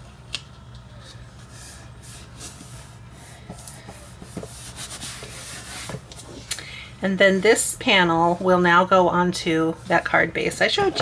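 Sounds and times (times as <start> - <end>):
paper rubbing on paper: 1.4 - 6.0.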